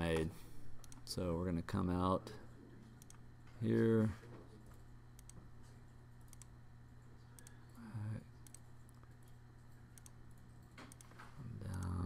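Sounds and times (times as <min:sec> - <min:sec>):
faint low hum: 0:00.0 - 0:12.0
computer mouse clicking: 0:00.8 - 0:01.1, 0:03.0 - 0:03.2, 0:05.2 - 0:05.4, 0:06.2 - 0:06.5, 0:07.4 - 0:07.6, 0:08.4 - 0:09.4, 0:10.0 - 0:12.0.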